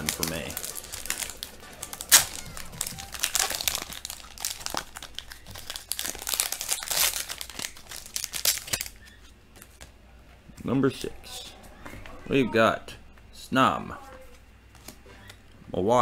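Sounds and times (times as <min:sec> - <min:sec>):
foil wrapper crinkling: 0:00.0 - 0:09.8.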